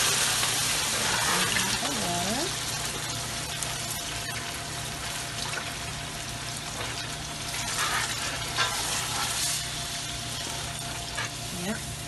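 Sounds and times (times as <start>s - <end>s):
pan sizzling: 0.0s - 12.0s
spatula stirring: 6.8s - 9.6s.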